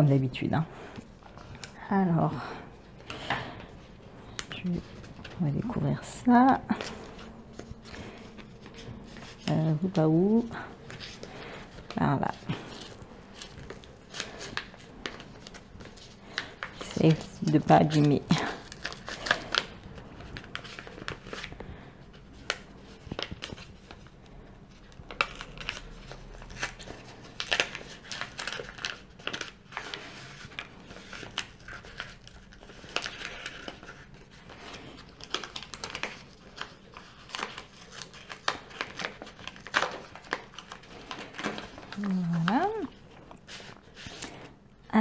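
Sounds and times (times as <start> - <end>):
paper envelope tearing open: 25.0 - 43.0.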